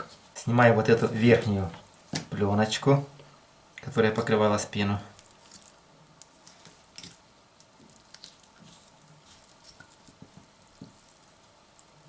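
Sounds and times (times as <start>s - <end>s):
wet squishes of meat: 5.1s - 12.0s.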